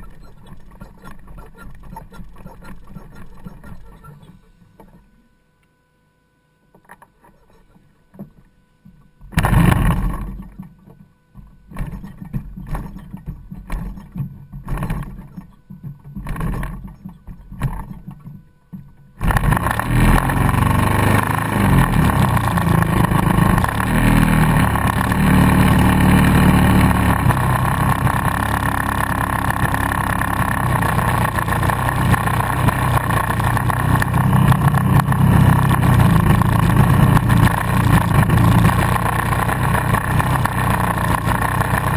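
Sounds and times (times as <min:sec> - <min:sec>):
model plane engine running: 0:00.0 - 0:05.0, 0:19.2 - 0:41.9.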